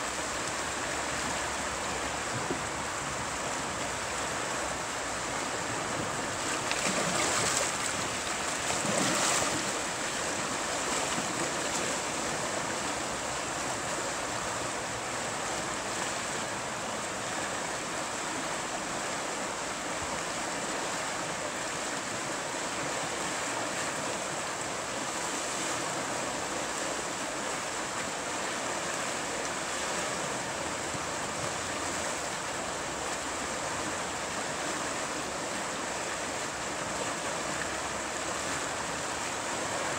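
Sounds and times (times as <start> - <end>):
river water rushing over rapid: 0.0 - 39.9.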